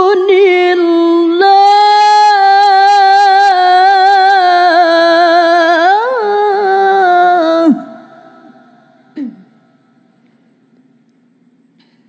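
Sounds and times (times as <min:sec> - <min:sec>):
woman reciting melodically: 0:00.0 - 0:09.6.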